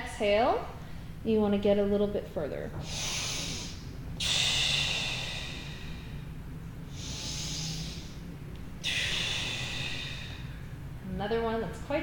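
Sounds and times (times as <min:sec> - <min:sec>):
woman breathing deeply: 0:00.8 - 0:01.2, 0:02.8 - 0:11.0.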